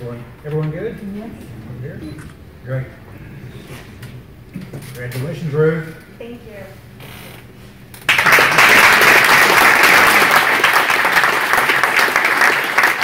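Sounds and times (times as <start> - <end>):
audience applauding: 8.0 - 13.0.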